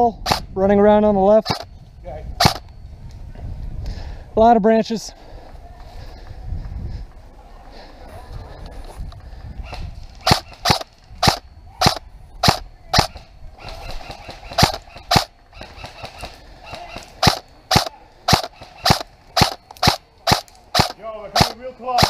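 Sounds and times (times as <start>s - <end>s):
airsoft rifle single shots: 0.2s - 0.5s, 1.4s - 1.7s, 2.4s - 2.6s, 9.7s - 22.0s.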